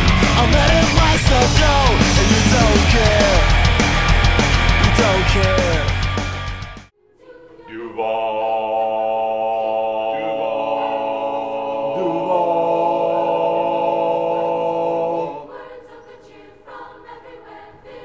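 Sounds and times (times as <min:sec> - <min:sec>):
men singing in harmony: 0:00.0 - 0:03.8, 0:04.8 - 0:06.0, 0:07.5 - 0:16.8.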